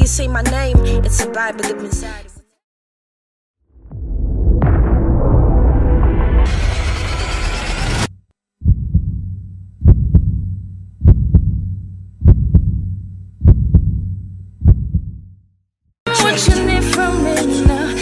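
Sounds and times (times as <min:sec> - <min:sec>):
music: 0:00.0 - 0:02.6, 0:16.1 - 0:18.0
low hum: 0:03.7 - 0:14.3
heartbeat thumps: 0:08.6 - 0:15.4.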